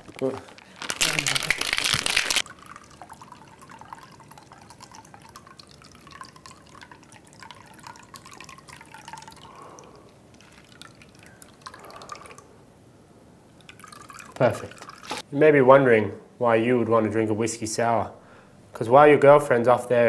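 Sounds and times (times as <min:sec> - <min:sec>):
ice clicking: 0:00.0 - 0:09.6
liquid trickling into a glass: 0:01.0 - 0:12.6, 0:13.5 - 0:15.2.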